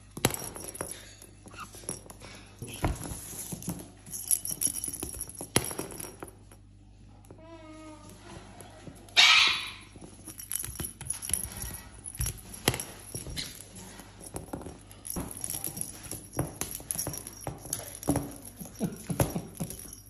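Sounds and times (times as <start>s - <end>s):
bell jingling: 0.3s - 6.5s, 9.7s - 20.0s
balls tapping on hard floor: 2.8s - 6.6s, 9.9s - 20.0s
parrot squawk: 9.2s - 9.8s.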